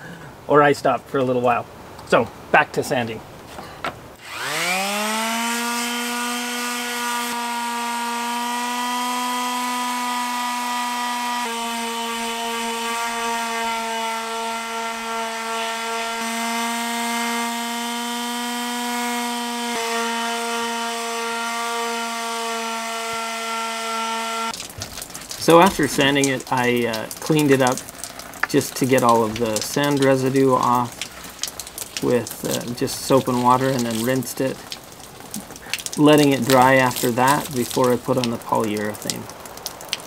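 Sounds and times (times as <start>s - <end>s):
electric sander running: 4.2s - 24.6s.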